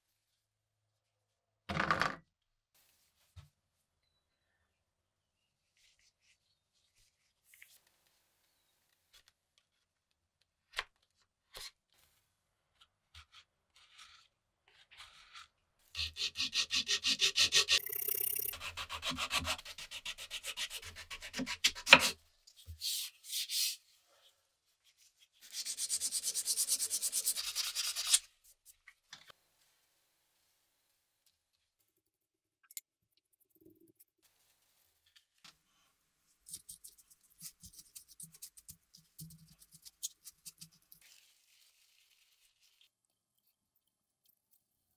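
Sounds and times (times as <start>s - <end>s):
sanding on sandpaper: 25.4s - 28.2s.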